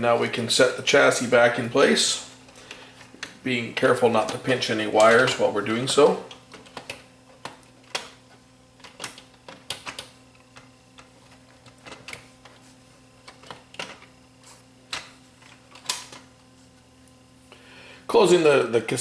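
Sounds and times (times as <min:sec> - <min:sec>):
faint steady hum: 0:00.0 - 0:19.0
metal parts clicking and knocking: 0:08.8 - 0:12.6.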